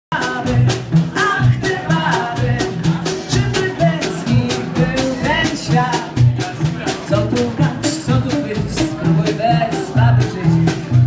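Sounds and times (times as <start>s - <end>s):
woman singing into microphone: 0.1s - 6.3s, 7.1s - 10.7s
double bass: 0.1s - 11.0s
guitar: 0.1s - 11.0s.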